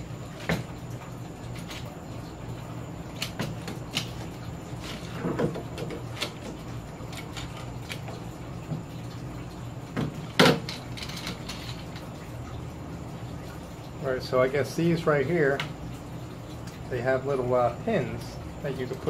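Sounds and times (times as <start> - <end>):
steady low hum: 0.0 - 19.0
parts clicking and knocking: 9.9 - 12.1.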